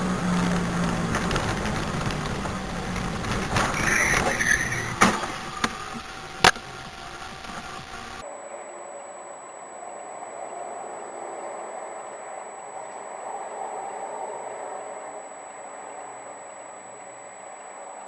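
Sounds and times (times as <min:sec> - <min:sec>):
car interior road and engine noise: 0:00.0 - 0:08.2.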